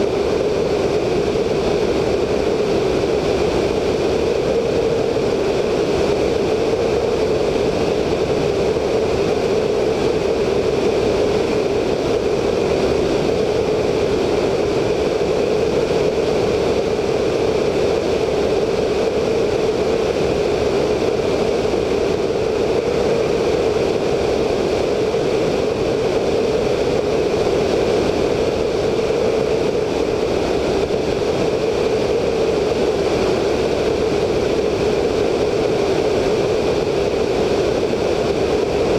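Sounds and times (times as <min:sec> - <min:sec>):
biplane radial engine and propeller: 0:00.0 - 0:38.9
wind rush on microphone: 0:00.0 - 0:38.9.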